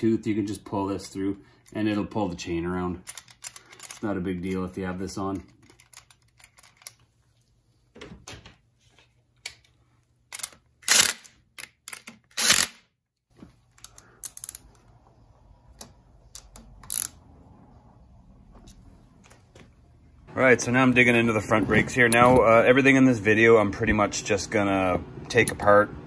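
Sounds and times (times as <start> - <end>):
tools clicking and knocking: 3.0 - 7.0, 9.4 - 12.8, 13.7 - 14.8, 15.7 - 17.2
cordless impact driver bursts: 12.4 - 12.8.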